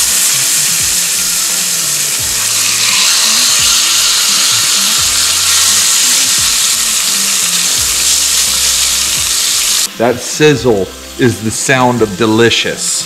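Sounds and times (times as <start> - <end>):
fish sizzling in a pan: 0.0 - 10.0.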